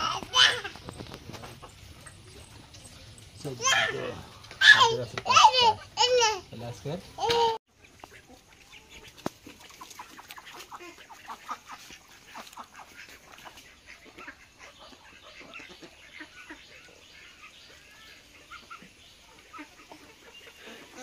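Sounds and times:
chickens clucking: 0.0 - 21.0.

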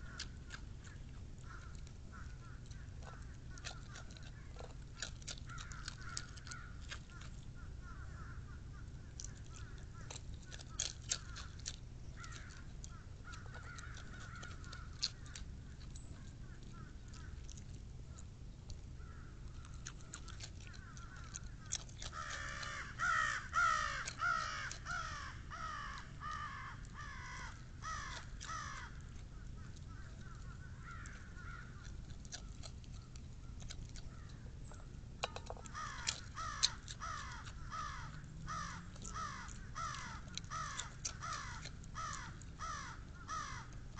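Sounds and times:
crows cawing: 1.4 - 4.7, 5.5 - 11.6, 12.2 - 15.4, 19.0 - 19.4, 20.7 - 29.0, 29.6 - 31.9, 35.3 - 43.8.

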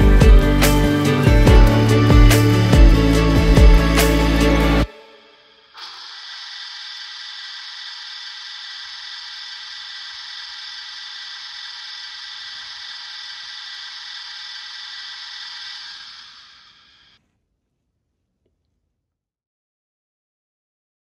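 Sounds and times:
model train motors whirring: 5.8 - 17.2.

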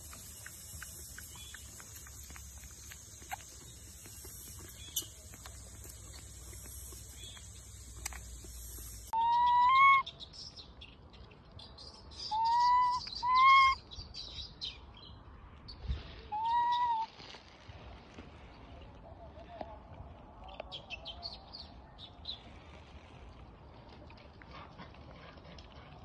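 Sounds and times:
steady hiss: 0.0 - 9.2
monkey coo calls: 9.2 - 10.0, 12.3 - 13.8.

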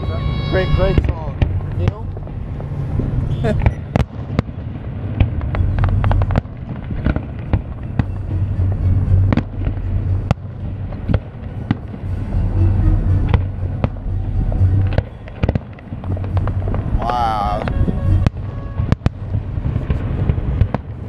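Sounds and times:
fireworks bangs: 0.0 - 12.4, 13.2 - 21.0
music with pulsing bass: 7.7 - 19.8.

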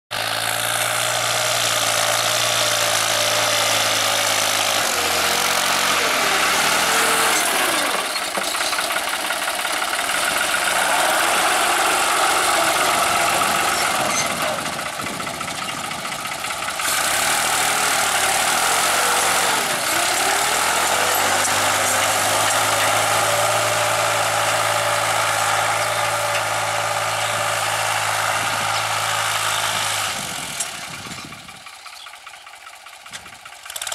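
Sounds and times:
tractor diesel engine running: 0.1 - 33.9.

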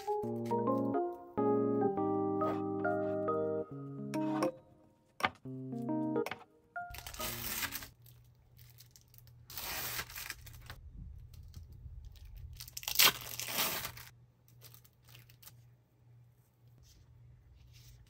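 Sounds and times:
plastic film peeling and crinkling: 6.9 - 15.7.

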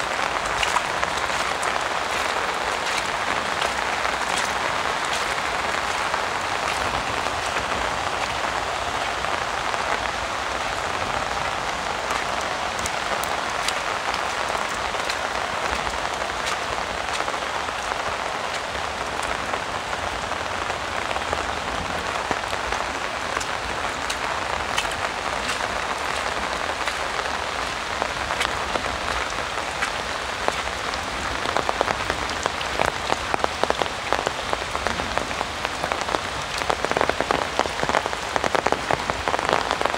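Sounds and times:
sharp raindrop hits: 0.0 - 8.6, 22.1 - 39.9
heavy rain on an umbrella: 0.0 - 39.9.

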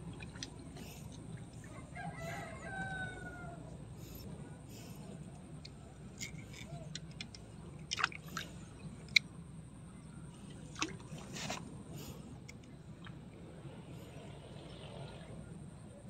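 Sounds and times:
water sloshing: 0.0 - 2.0, 6.0 - 9.2, 10.4 - 12.2
low background rumble: 0.0 - 16.0.

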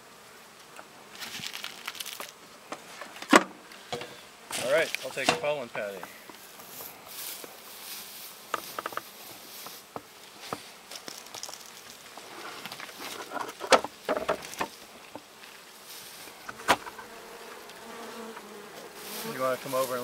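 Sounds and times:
honeybees buzzing: 0.0 - 20.0
wooden knocks: 13.3 - 15.2.

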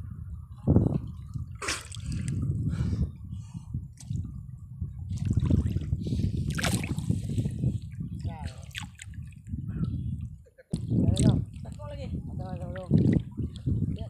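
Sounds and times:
seawater splashing and sloshing: 1.2 - 2.4, 5.1 - 9.5.

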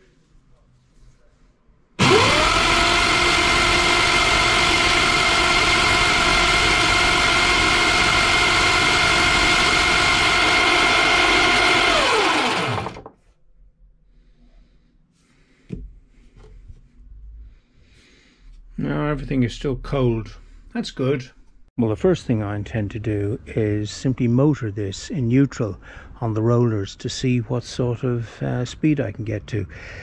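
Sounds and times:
electric motor whine: 2.0 - 13.1.

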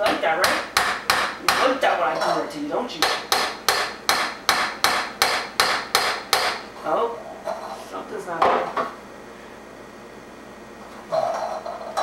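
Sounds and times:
hammer tapping on aluminium: 0.4 - 1.7, 3.0 - 6.6.

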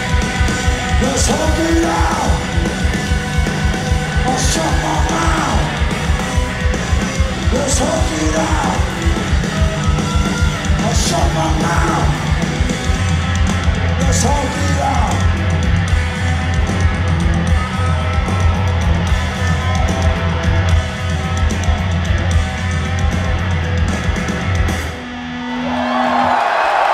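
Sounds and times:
shouted vocals: 0.0 - 12.6, 25.4 - 26.9
crowd noise: 0.0 - 26.9
heavy drums: 0.0 - 26.9
punk rock band playing: 0.0 - 26.9.

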